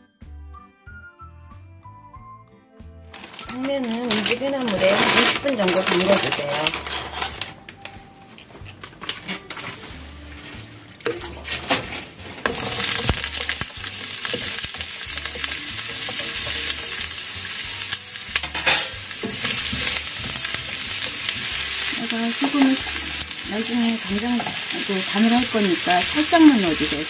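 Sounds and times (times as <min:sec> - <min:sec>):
food sizzling in frying pan: 0:03.2 - 0:07.5, 0:11.4 - 0:27.0.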